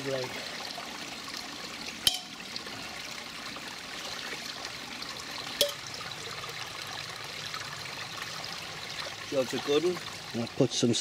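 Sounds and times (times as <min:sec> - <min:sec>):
stream trickling over rocks: 0:00.0 - 0:11.0
metal pot clinking: 0:02.0 - 0:02.4, 0:05.6 - 0:05.9.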